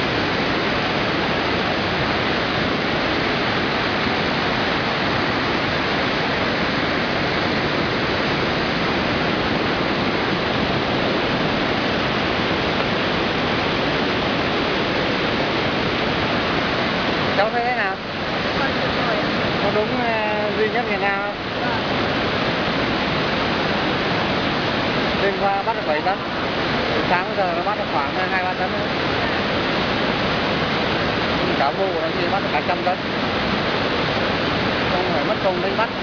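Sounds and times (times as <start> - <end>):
water rushing through spillway: 0.0 - 36.0.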